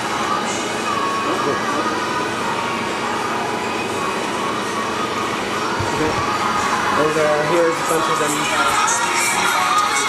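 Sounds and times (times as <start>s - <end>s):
machine hiss and hum: 0.0s - 10.0s.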